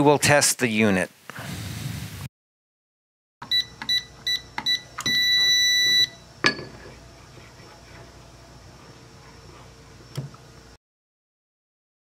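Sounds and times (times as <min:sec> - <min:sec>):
keypad beeps: 0:03.4 - 0:06.2.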